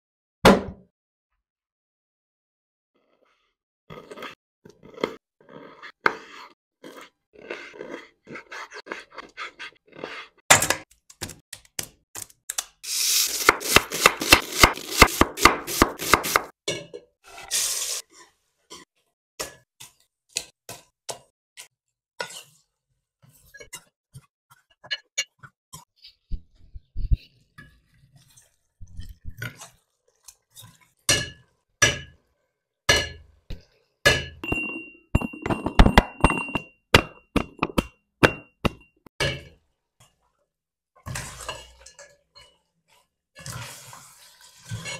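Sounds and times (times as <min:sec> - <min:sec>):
metal mortar ringing: 0:34.1 - 0:39.4.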